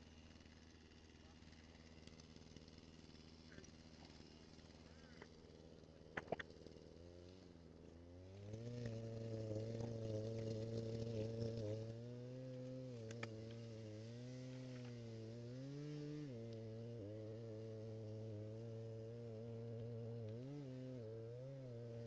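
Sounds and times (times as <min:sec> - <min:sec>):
small engine running: 0:00.0 - 0:22.0.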